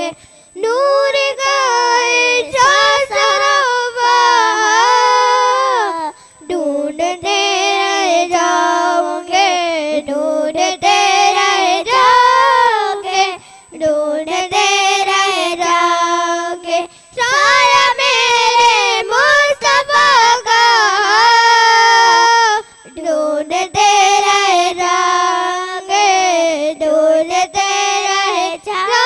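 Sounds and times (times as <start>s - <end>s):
girls singing unaccompanied: 0.0s - 29.0s.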